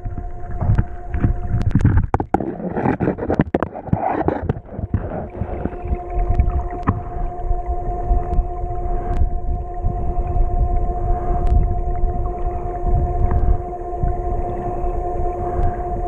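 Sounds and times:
faint steady hum: 0.0 - 16.0
gurgling water rush: 0.0 - 16.0
muffled underwater river rumble: 0.0 - 16.0
sharp clicks and knocks: 0.6 - 5.8.

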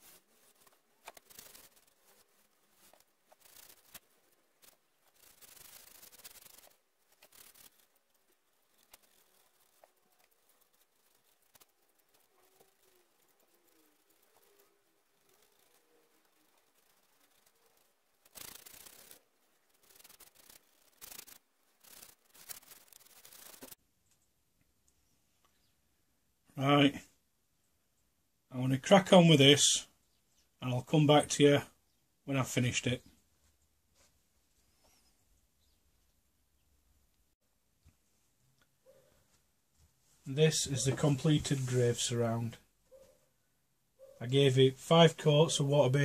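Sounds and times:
brush stroking wood: 0.0 - 23.8, 38.9 - 43.2.

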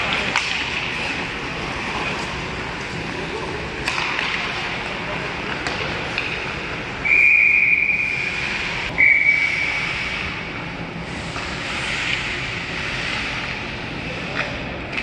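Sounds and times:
arena noise hiss: 6.0 - 14.9
referee's whistle blasts: 7.0 - 8.2, 9.0 - 9.7.

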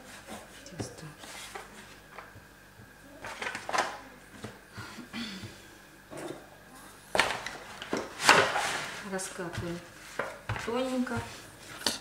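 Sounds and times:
hands rubbing dough and cling film: 0.0 - 2.4, 7.6 - 11.9.

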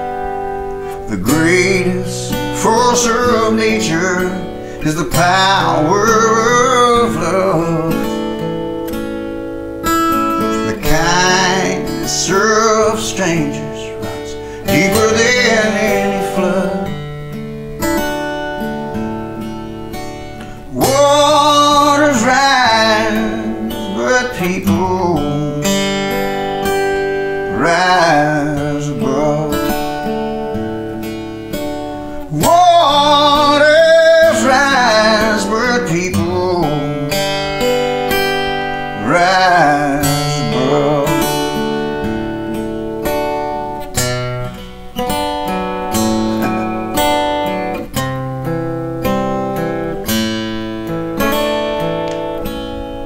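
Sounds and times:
acoustic guitar strumming: 0.0 - 53.0
man singing: 0.8 - 8.6, 10.4 - 17.1, 20.4 - 26.8, 27.4 - 30.6, 32.2 - 37.8, 38.8 - 42.8.

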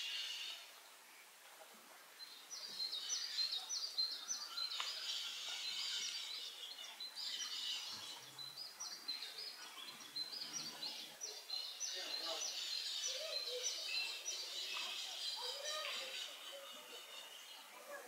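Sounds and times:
small birds chirping: 0.0 - 18.0.

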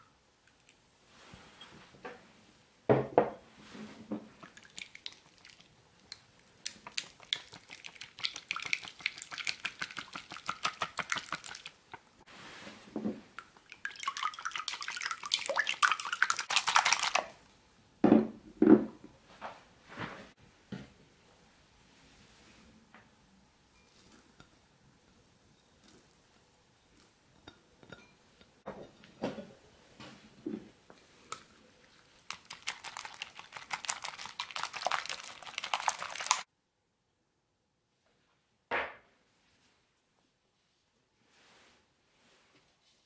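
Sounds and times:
whisk clicking against bowl: 6.6 - 12.0.

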